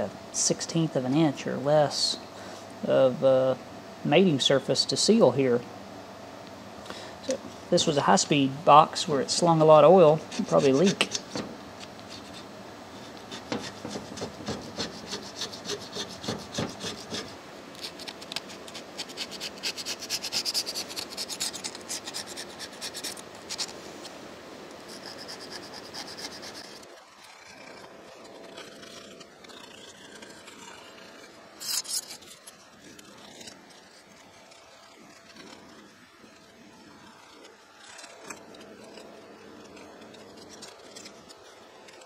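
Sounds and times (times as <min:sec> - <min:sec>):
blade scraping metal: 0:09.3 - 0:23.8, 0:24.9 - 0:42.0.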